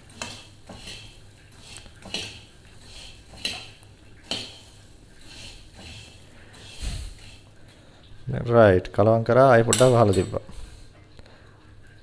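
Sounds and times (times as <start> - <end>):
nuts and salt rattling in a wok: 0.0 - 7.6.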